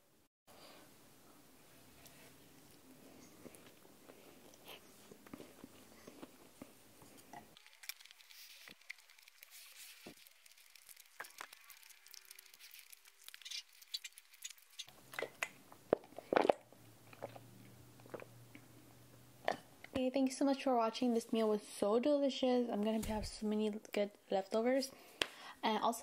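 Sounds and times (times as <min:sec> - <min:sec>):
crackles: 0:01.9 - 0:18.7
chewing and mouth clicks: 0:02.5 - 0:18.7.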